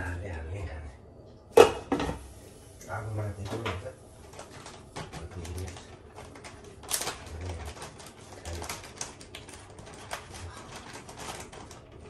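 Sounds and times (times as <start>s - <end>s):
plastic packet crinkling: 4.2s - 12.0s.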